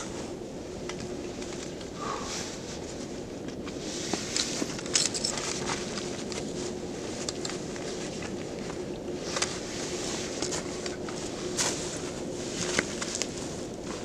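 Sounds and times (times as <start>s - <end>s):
nylon jacket and backpack rustling: 0.0s - 14.0s
buckles clicking and knocking: 4.4s - 6.4s.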